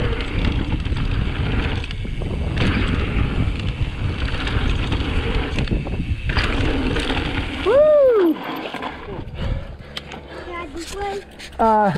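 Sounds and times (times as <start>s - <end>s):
wind buffeting microphone: 0.0s - 8.4s, 9.0s - 9.9s
tyres rolling on dirt trail: 0.0s - 11.9s.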